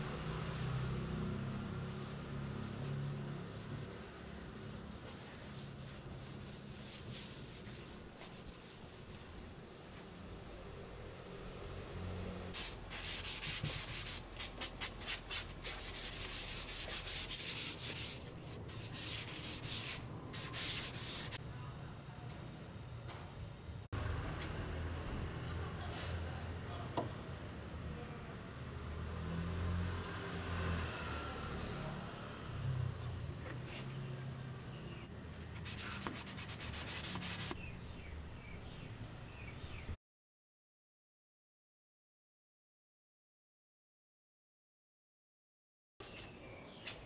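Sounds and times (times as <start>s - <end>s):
abrasive pad sanding wood: 0.2s - 12.0s, 12.6s - 21.4s, 35.4s - 37.6s
cloth wiping wood: 0.8s - 11.8s, 12.6s - 21.4s, 35.6s - 37.6s.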